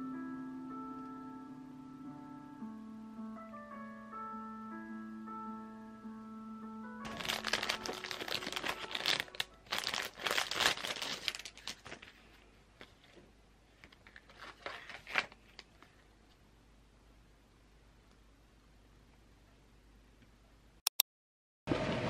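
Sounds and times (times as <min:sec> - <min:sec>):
paper crinkling and tearing: 0:07.1 - 0:13.2, 0:13.8 - 0:16.0.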